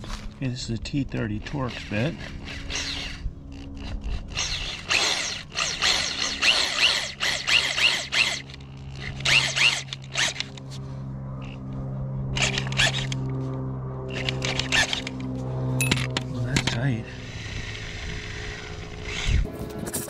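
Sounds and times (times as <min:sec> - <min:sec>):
drill motor running: 0:01.3 - 0:10.6, 0:12.3 - 0:13.3, 0:14.1 - 0:19.6.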